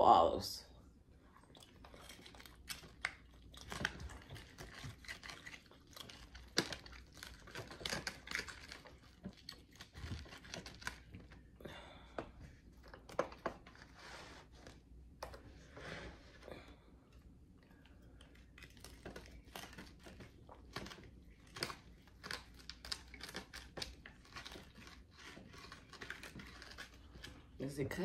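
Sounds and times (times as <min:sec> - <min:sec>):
pizza cutter crunching through crust: 0:01.8 - 0:11.5, 0:18.4 - 0:28.0.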